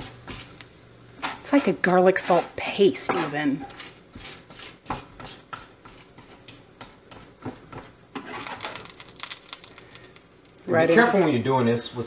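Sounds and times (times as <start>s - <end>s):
knife scraping on cutting board: 0.0s - 0.6s, 1.2s - 8.9s.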